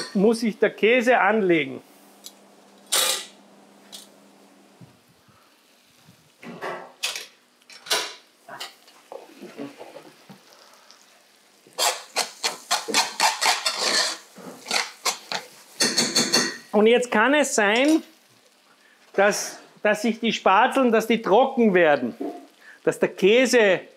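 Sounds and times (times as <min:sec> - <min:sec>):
cookware clattering: 0:11.8 - 0:16.7
metal spoon scraping frying pan: 0:11.8 - 0:16.7.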